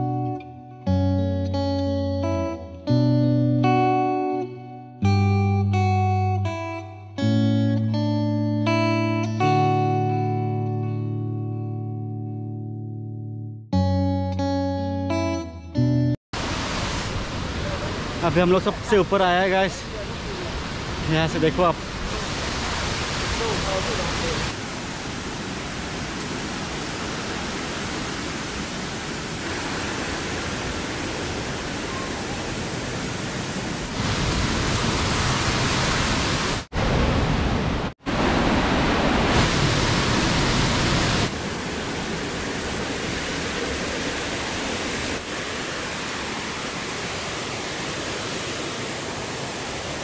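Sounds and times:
waterfall rushing: 16.4s - 50.0s.

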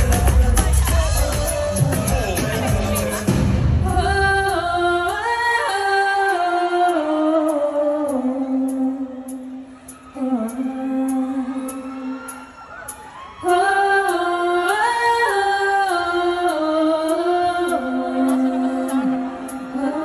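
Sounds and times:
person singing with music: 0.0s - 20.0s.

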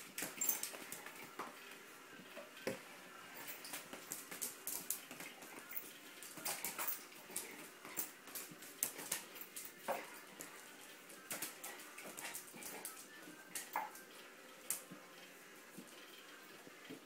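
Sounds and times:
dog claws clicking on tiles: 3.4s - 10.6s.

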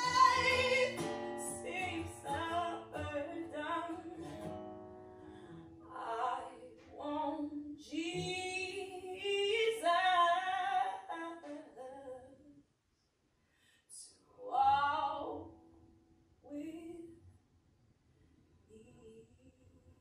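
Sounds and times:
woman singing solo: 0.0s - 4.2s.

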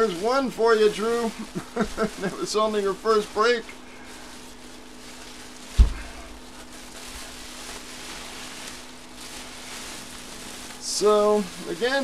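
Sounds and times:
bubble wrap rustling: 0.0s - 12.0s
dull thump: 5.7s - 6.2s.

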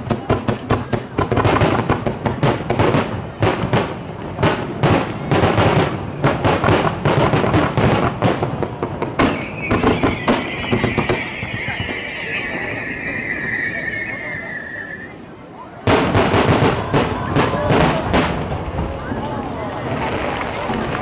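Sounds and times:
fireworks bangs and crackles: 0.0s - 21.0s
firework whistle falling: 9.1s - 18.4s.

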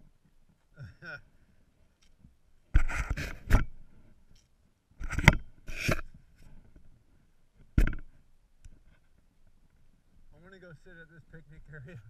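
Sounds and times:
cloth rubbing on camera housing: 2.7s - 3.8s, 5.0s - 6.2s.

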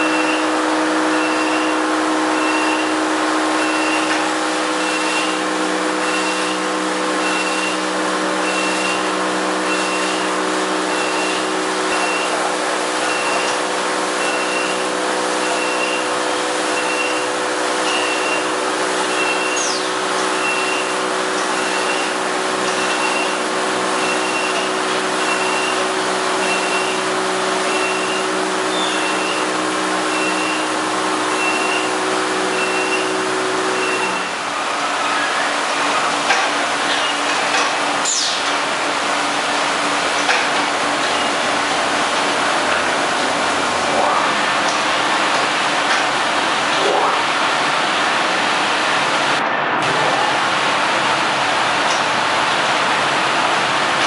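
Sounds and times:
car wash motors humming: 0.0s - 54.0s
water jets spraying a car: 44.4s - 54.0s.

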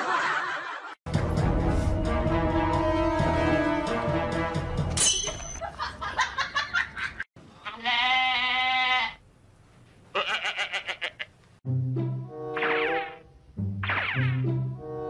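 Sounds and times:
wavering bleat-like animal calls: 7.6s - 9.2s, 10.1s - 11.4s.

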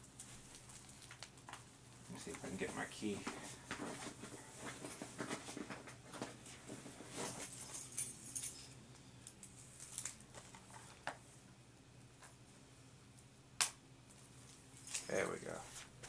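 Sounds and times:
keys jangling: 7.2s - 8.8s, 14.8s - 15.4s.

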